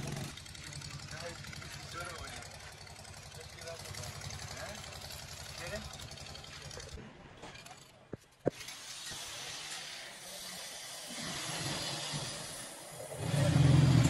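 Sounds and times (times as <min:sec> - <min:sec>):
vehicle engine humming: 0:00.0 - 0:07.0
workshop noise hiss: 0:08.6 - 0:14.0.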